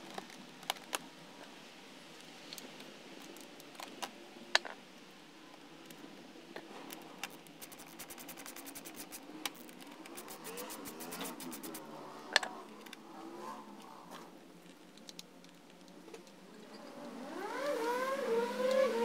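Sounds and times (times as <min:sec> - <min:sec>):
tools clicking on bolts: 0:07.2 - 0:11.8.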